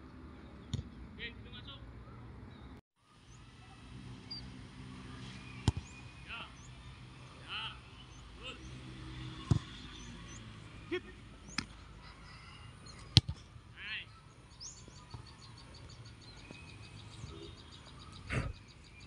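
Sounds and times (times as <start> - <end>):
birds chirping: 0.0 - 19.0
football being kicked: 5.6 - 6.0, 9.4 - 9.8, 13.1 - 13.4.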